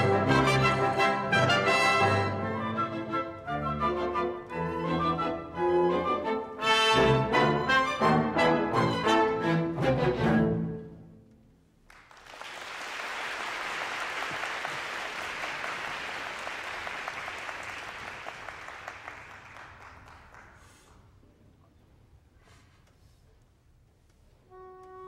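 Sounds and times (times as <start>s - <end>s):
audience applause: 11.9s - 21.0s.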